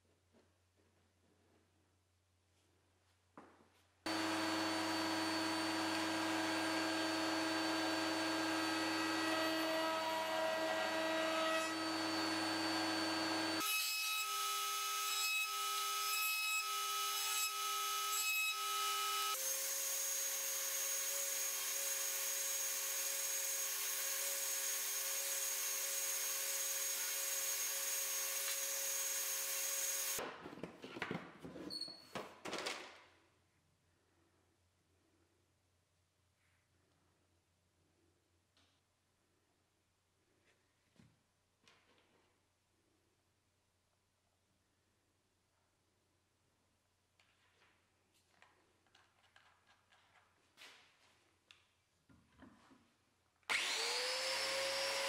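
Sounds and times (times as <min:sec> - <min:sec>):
power tools running: 0:04.1 - 0:11.0, 0:11.7 - 0:13.6, 0:53.5 - 0:55.0
router cutting wood: 0:04.1 - 0:30.2, 0:53.5 - 0:55.0.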